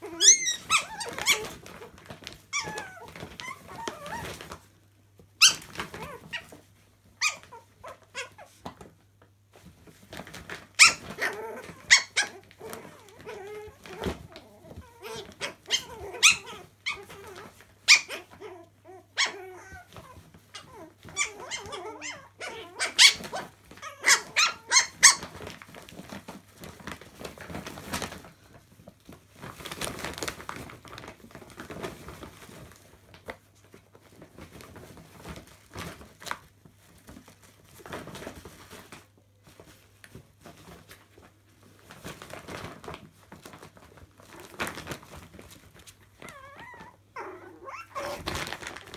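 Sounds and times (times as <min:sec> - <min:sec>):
puppies yipping and barking: 0:00.1 - 0:01.5, 0:10.8 - 0:12.4, 0:15.0 - 0:19.9, 0:20.6 - 0:25.4, 0:46.4 - 0:48.2.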